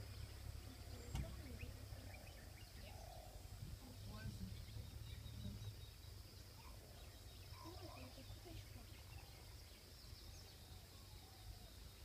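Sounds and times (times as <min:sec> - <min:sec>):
distant bird calls: 0:00.0 - 0:12.0
high insect hum: 0:00.0 - 0:12.0.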